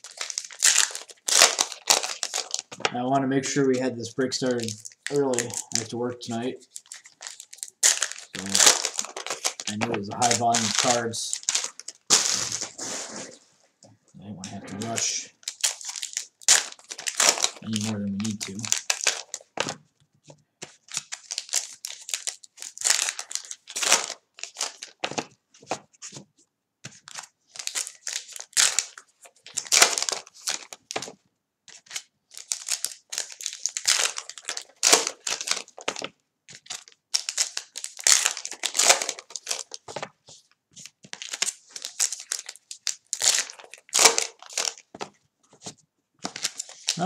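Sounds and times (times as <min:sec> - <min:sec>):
wrappers crinkling: 0:00.0 - 0:13.4, 0:14.4 - 0:19.8, 0:20.7 - 0:26.2, 0:26.9 - 0:47.0
cards handled and stacked: 0:23.8 - 0:28.0, 0:38.2 - 0:42.4, 0:43.9 - 0:46.9.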